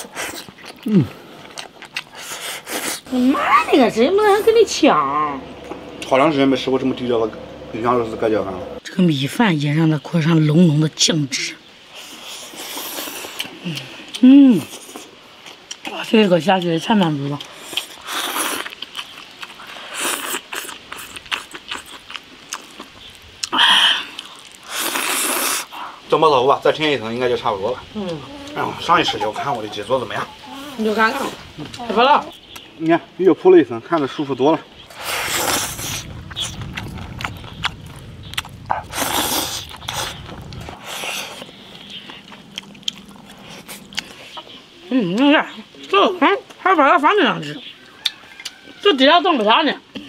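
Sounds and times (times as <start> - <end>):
person chewing food: 0.0 - 3.2, 12.0 - 16.0, 16.6 - 25.8, 34.9 - 45.2
slurping: 0.0 - 3.4, 12.0 - 15.7, 17.4 - 26.0, 34.8 - 44.7.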